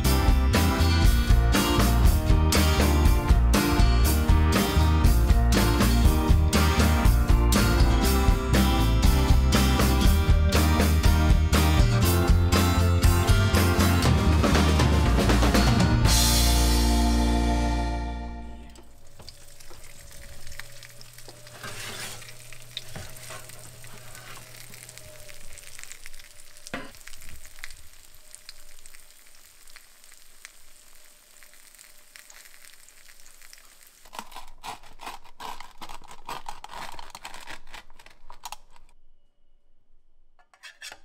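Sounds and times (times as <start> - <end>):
food sizzling in a pan: 19.0 - 34.1.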